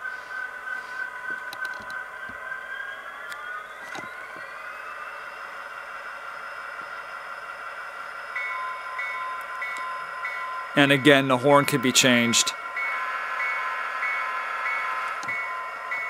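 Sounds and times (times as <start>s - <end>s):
diesel locomotive engine through small speaker: 0.0s - 16.0s
locomotive bell ringing: 8.3s - 16.0s.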